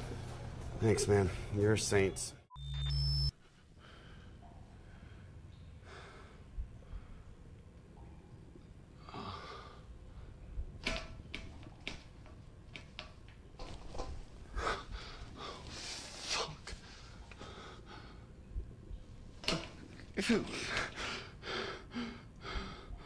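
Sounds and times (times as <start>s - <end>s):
man breathing heavily: 3.4s - 7.5s, 14.4s - 18.5s, 20.6s - 23.0s.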